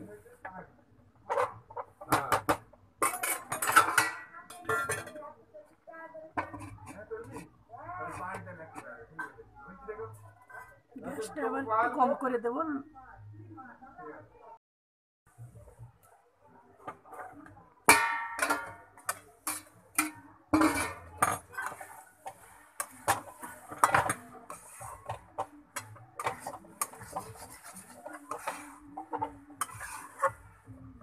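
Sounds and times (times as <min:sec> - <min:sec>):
metal spatula scraping a pan: 0:01.3 - 0:05.2, 0:06.4 - 0:09.4, 0:17.9 - 0:30.7
metal lid clanking: 0:17.9 - 0:21.4.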